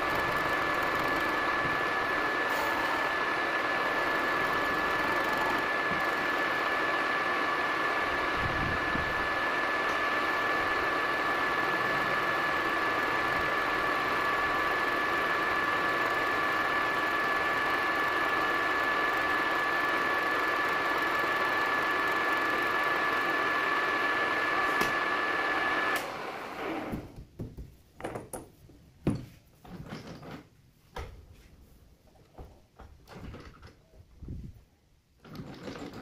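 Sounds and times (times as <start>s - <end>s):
metal lathe whining: 0.0s - 27.0s.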